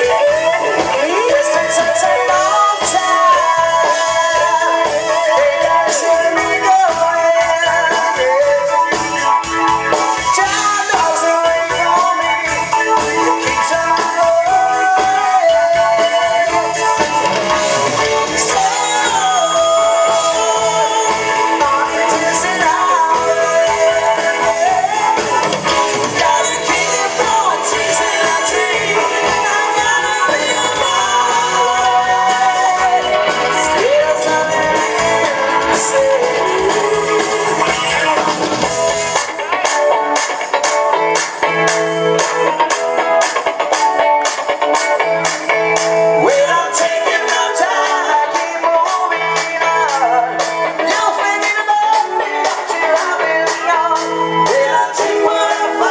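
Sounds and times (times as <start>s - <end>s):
man singing: 0.0s - 39.9s, 46.1s - 55.9s
drum kit: 0.0s - 55.9s
electric guitar: 0.0s - 55.9s.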